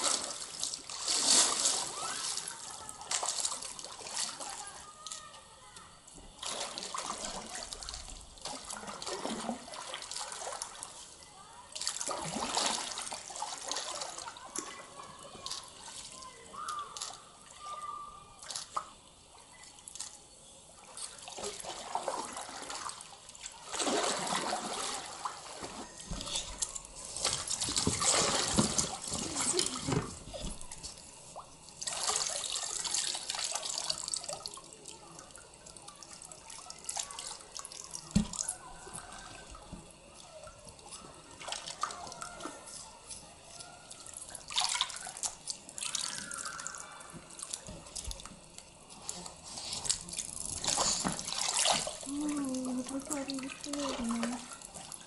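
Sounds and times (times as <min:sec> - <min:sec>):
water splashing against paddle board: 0:00.0 - 0:05.3, 0:06.3 - 0:11.1, 0:11.7 - 0:17.8, 0:21.1 - 0:31.1, 0:43.6 - 0:55.0.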